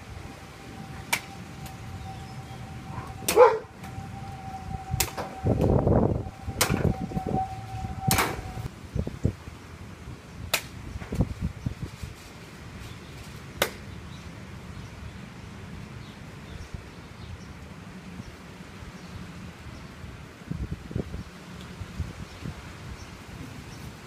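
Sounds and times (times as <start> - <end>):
faint steady tone: 0.0 - 8.7
bark-like yelp: 2.9 - 3.8.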